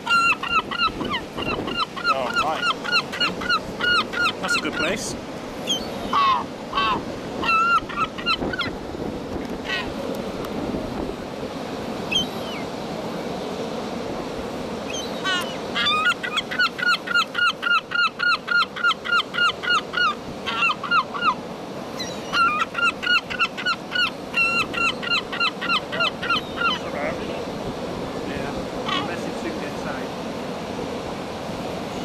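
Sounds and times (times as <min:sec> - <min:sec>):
gull calling: 0:00.0 - 0:08.8, 0:09.6 - 0:10.0, 0:12.1 - 0:12.7, 0:14.9 - 0:27.1, 0:28.8 - 0:29.2.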